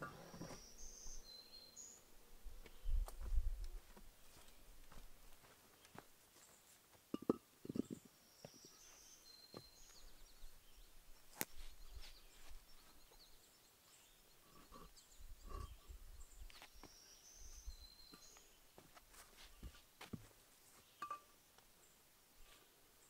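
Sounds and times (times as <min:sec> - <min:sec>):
soft shuffling: 0:18.8 - 0:20.9.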